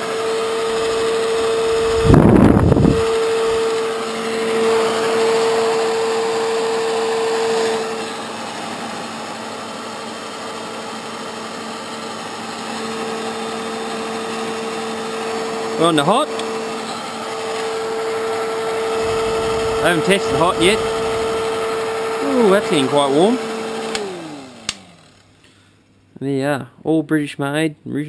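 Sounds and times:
hair dryer motor hum: 0.0s - 25.7s
airflow rumbling on microphone: 0.9s - 3.6s, 19.0s - 21.5s.

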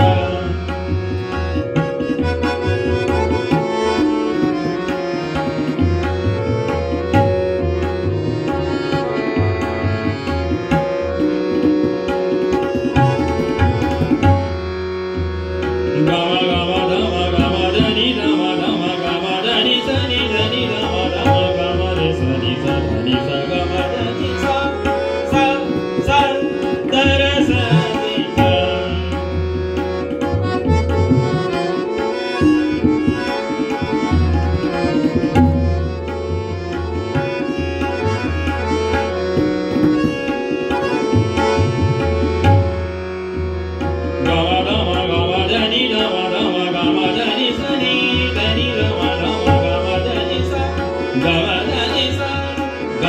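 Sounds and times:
man singing: 0.0s - 3.7s, 15.6s - 30.2s, 43.8s - 53.0s
harmonium chords: 0.0s - 53.0s
tabla playing: 0.0s - 53.0s.

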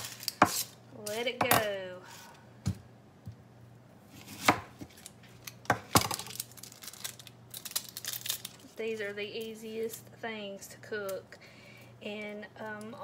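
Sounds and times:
knife cutting onion on board: 4.2s - 4.9s.

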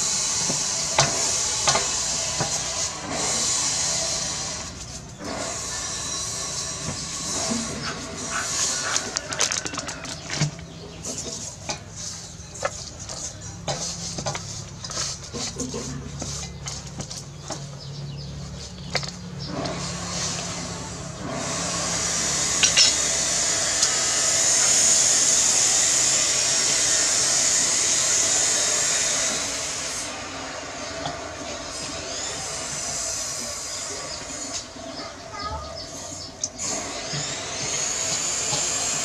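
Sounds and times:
hands rubbing fish in metal bowl: 8.2s - 17.3s.

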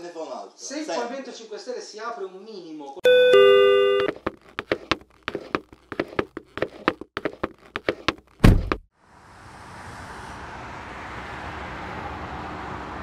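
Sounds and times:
footsteps on pavement: 4.0s - 8.8s
car door slamming: 8.4s - 8.8s.

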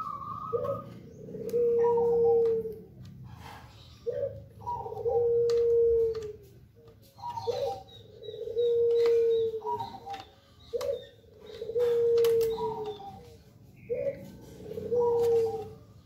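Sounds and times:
dove cooing: 0.0s - 16.0s
plastic fan blades clicking: 8.9s - 13.4s.

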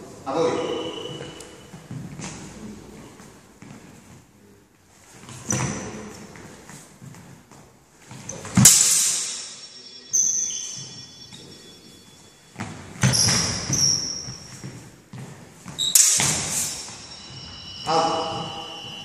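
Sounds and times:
swords clashing with metallic ring: 8.6s - 11.2s, 15.8s - 19.0s.

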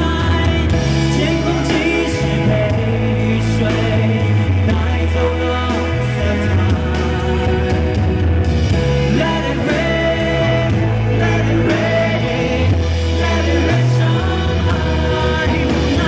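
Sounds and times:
person singing amplified: 0.0s - 8.2s, 8.8s - 16.0s
live band music: 0.0s - 16.0s.

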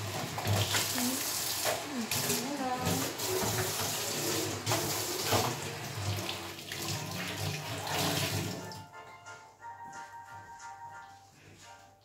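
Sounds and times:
tap water running into sink: 0.0s - 8.8s.

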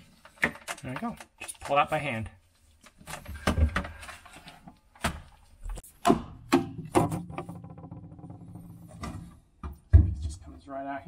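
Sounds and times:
plastic fridge parts knocking: 6.0s - 10.4s.

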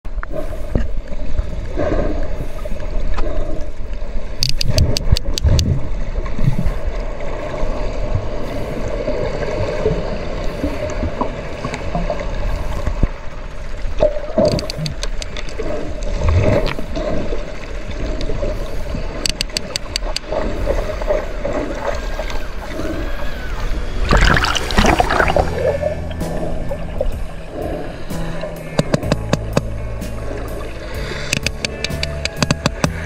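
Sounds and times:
underwater water noise and rumble: 0.1s - 33.0s
sperm whale clicks: 3.0s - 5.9s, 14.0s - 17.2s, 18.0s - 23.6s, 27.5s - 30.4s, 31.0s - 33.0s.

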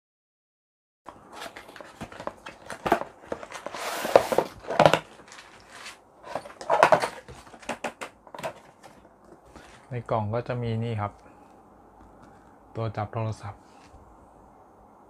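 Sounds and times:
box being opened and handled: 1.1s - 9.9s
rustling scrape: 1.1s - 9.9s.

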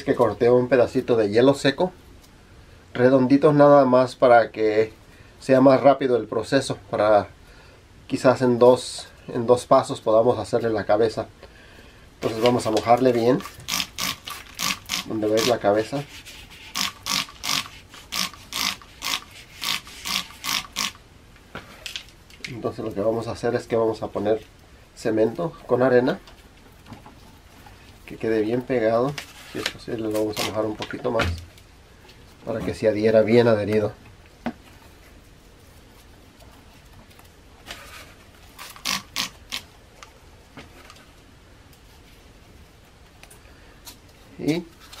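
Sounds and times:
spray bottle squirting water: 13.4s - 21.0s, 38.6s - 39.7s.

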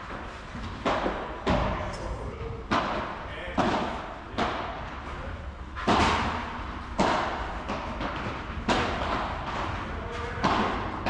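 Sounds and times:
padel rackets hitting ball: 0.6s - 1.8s, 2.6s - 4.9s, 5.7s - 11.0s.

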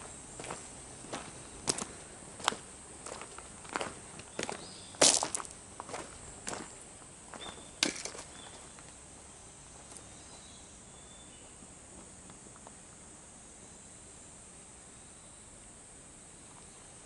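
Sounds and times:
footsteps: 0.0s - 9.0s
faint outdoor hiss: 0.0s - 17.0s.

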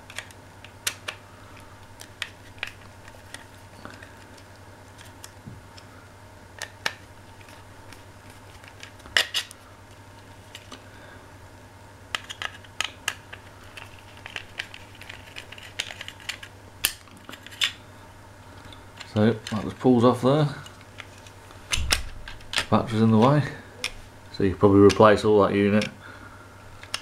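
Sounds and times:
faint steady hum: 0.0s - 27.0s.

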